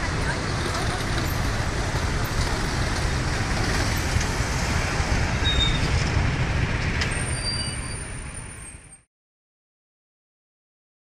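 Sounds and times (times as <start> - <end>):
motorbike and car engines: 0.0 - 9.0.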